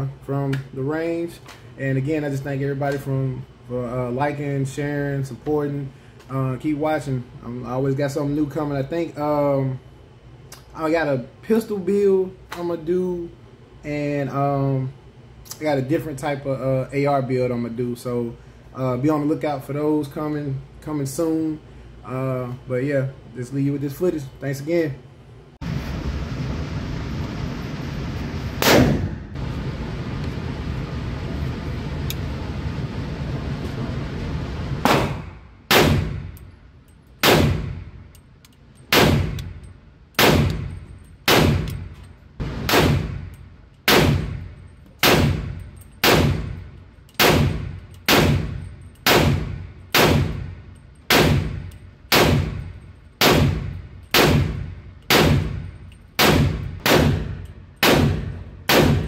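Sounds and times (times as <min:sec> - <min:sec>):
steady rushing noise: 0:25.6 - 0:35.4
pistol shots: 0:28.6 - 0:29.2, 0:34.8 - 0:36.4, 0:37.2 - 0:37.8, 0:38.9 - 0:39.4, 0:40.2 - 0:40.7, 0:41.3 - 0:41.8, 0:42.5 - 0:43.3, 0:43.9 - 0:46.6, 0:47.2 - 0:59.0.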